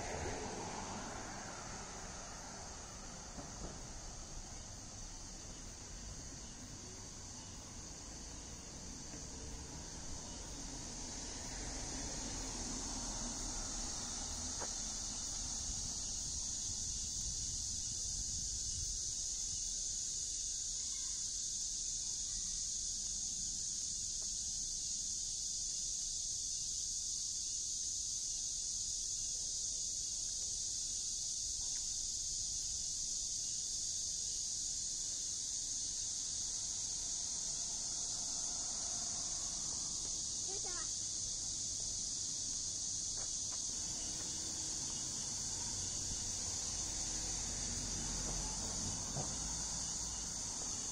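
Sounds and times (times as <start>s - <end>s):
faint traffic rumble: 0.0s - 19.2s, 35.8s - 50.9s
insect chorus drone: 0.0s - 50.9s.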